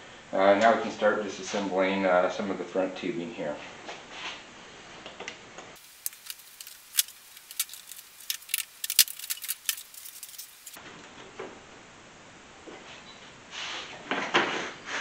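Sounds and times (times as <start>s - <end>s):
pliers clicking on hose clamps: 5.8s - 10.8s.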